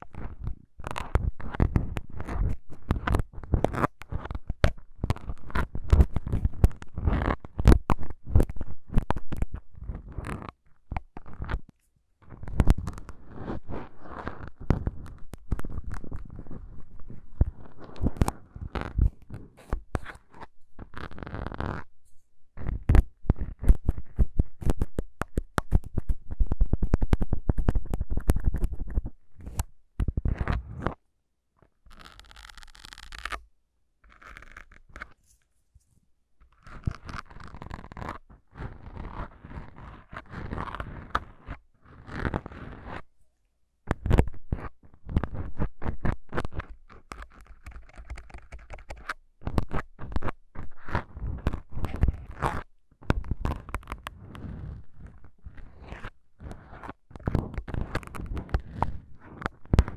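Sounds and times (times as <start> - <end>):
plastic syringes clicking and scratching: 43.9 - 59.9.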